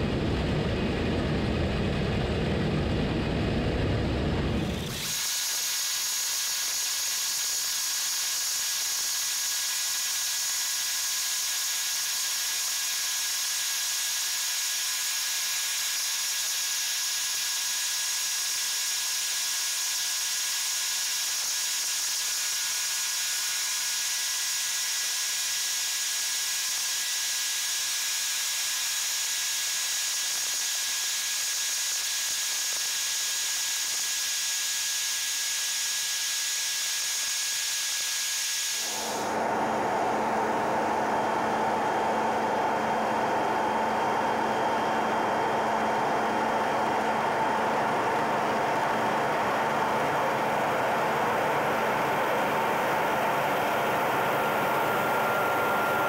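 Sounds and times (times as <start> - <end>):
machinery whining: 0.0 - 5.6, 38.7 - 56.0.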